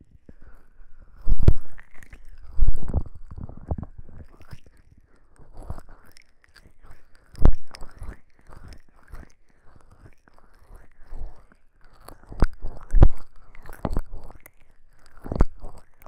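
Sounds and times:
fingers rubbing microphone: 0:00.9 - 0:04.8, 0:05.4 - 0:14.4, 0:15.0 - 0:15.9.

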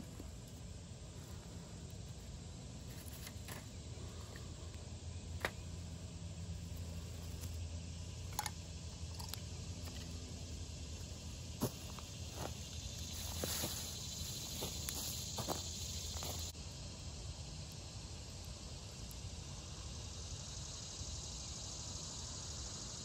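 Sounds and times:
steady outdoor hiss: 0:00.0 - 0:23.0
cloth rustling on dry leaves: 0:11.7 - 0:16.5.

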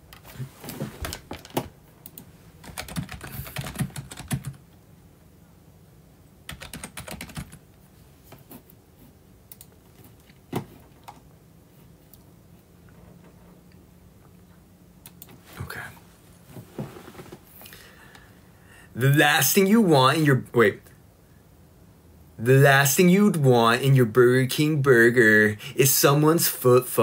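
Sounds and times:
typing on a keyboard: 0:01.1 - 0:04.6, 0:06.5 - 0:07.6.

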